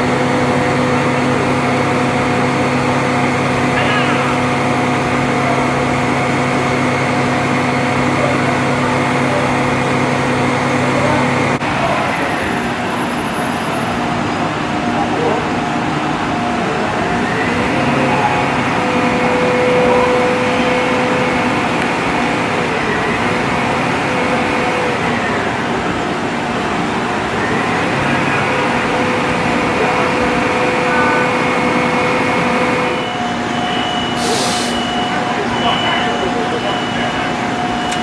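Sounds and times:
truck engine and hydraulics running: 0.0 - 38.0.

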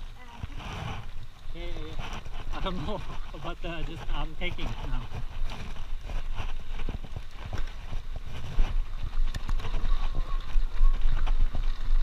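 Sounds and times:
bike rolling over dirt trail: 0.0 - 12.0
wind rumble on microphone: 0.0 - 12.0.

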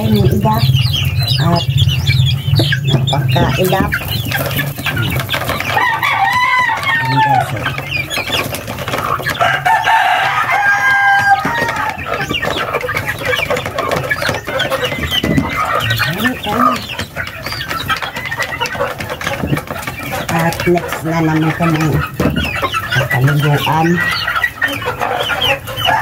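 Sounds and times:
chickens clucking: 0.0 - 26.0
rooster crowing: 5.7 - 7.6, 9.4 - 12.2.

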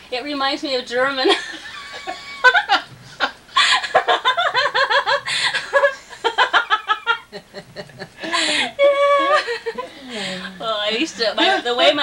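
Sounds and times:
elderly woman laughing: 1.3 - 12.0.

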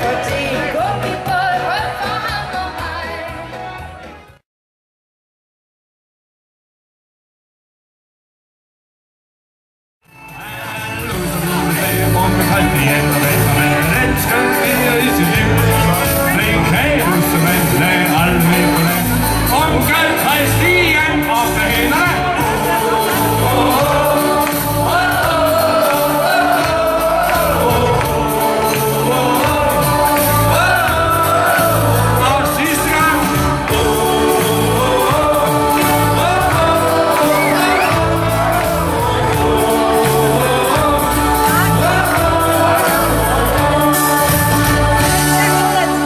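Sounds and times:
keyboard with steady beat: 10.1 - 46.0
person singing: 10.2 - 46.0.

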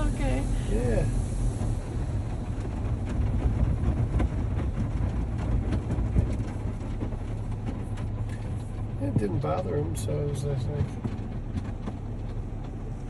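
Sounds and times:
spraying water: 0.0 - 3.4
car wash machinery rumble: 0.0 - 13.0.

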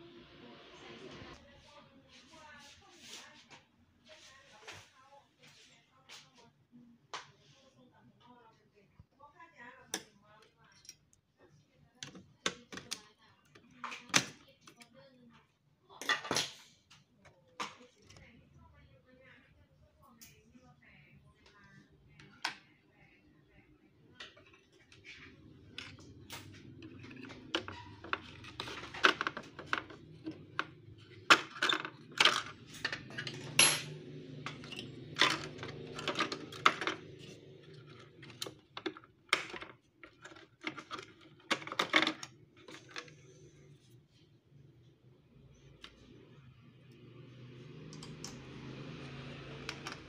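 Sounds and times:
plastic printer parts clattering: 24.2 - 33.6, 34.4 - 43.4.

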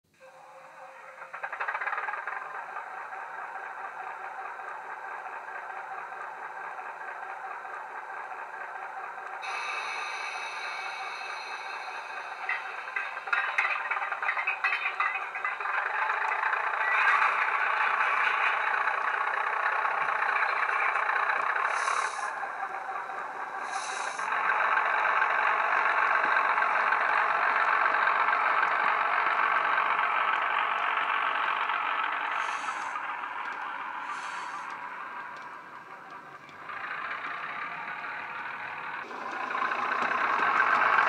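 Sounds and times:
diesel engine through small speaker: 0.1 - 41.0
wagon and coupling clatter: 12.4 - 21.7
short hisses: 23.6 - 24.3, 32.3 - 33.1, 34.0 - 34.7.

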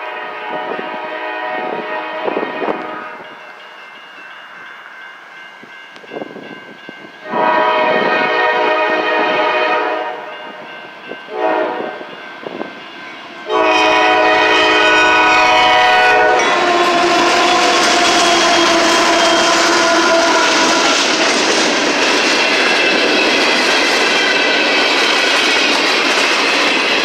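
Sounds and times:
locomotive air horn: 0.0 - 3.2, 7.2 - 10.4, 11.3 - 12.1, 13.4 - 21.4
train engine roar: 0.0 - 27.0.

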